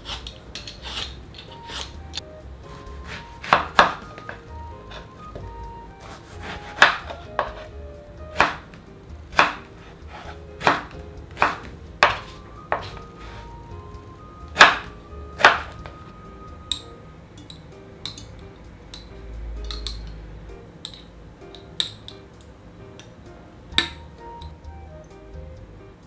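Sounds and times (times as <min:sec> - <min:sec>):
knife slicing on wooden board: 0:06.0 - 0:07.7.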